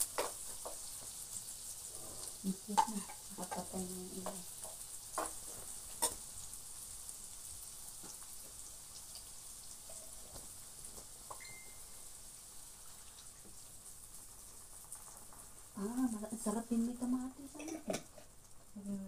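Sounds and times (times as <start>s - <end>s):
food sizzling in oil: 0.0s - 19.0s
spatula scraping a pan: 4.6s - 6.3s.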